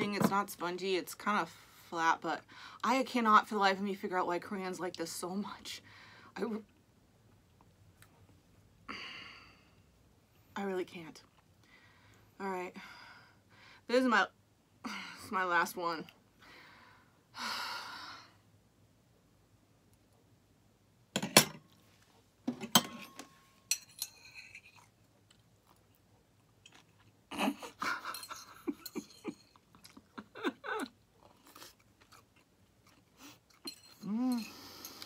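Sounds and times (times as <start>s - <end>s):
mouth chewing and crunching: 24.4s - 28.6s, 29.3s - 35.0s.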